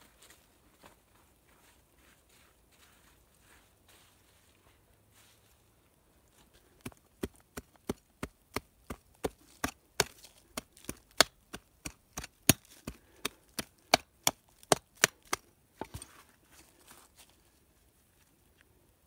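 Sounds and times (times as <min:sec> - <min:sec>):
hand tool chopping into soil: 0:06.8 - 0:16.2.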